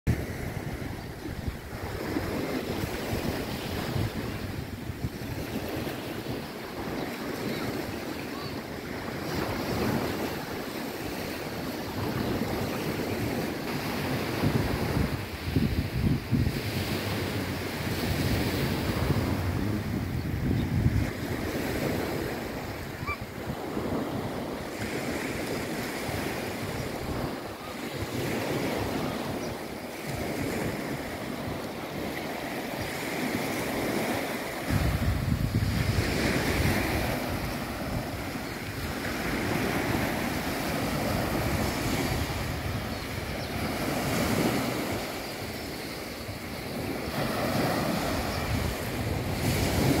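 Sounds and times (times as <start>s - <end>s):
small waves washing on shore: 0.1s - 50.0s
wind buffeting microphone: 0.1s - 50.0s.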